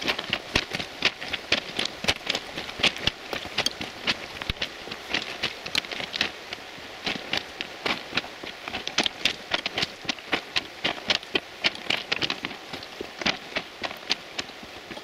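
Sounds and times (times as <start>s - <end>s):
footsteps crunching on stones: 0.0s - 15.0s.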